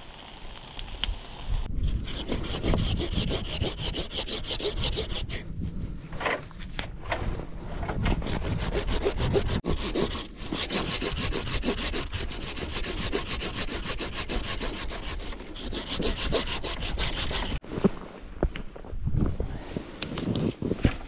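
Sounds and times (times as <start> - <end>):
saw cutting branch: 1.7 - 5.4, 8.2 - 17.6.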